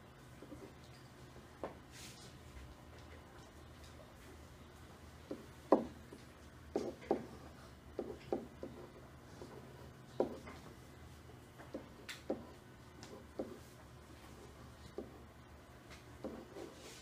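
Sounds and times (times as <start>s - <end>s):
marker tapping on whiteboard: 5.2s - 10.7s, 11.6s - 13.7s, 14.8s - 15.2s, 16.0s - 16.7s.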